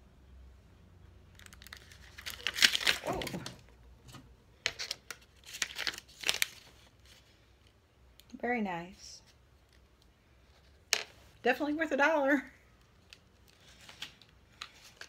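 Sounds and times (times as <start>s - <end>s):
plastic packaging crinkling: 1.3s - 3.7s, 4.7s - 7.2s.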